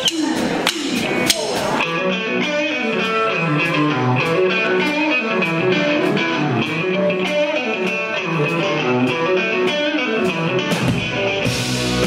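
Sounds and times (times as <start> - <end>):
drumstick count-in clicks: 0.0 - 1.8
rock band playing: 0.0 - 12.0.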